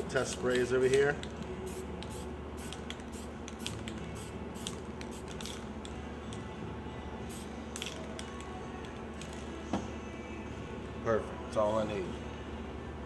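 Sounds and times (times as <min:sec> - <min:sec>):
spray paint can hissing: 0:01.7 - 0:05.6, 0:07.3 - 0:07.9.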